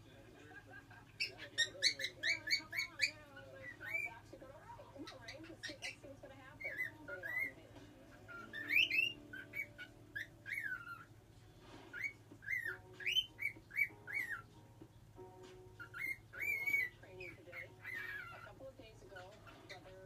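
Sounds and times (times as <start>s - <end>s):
cockatiel whistling: 1.2s - 4.2s, 6.6s - 7.6s, 8.3s - 11.2s, 11.9s - 14.6s, 15.7s - 18.5s.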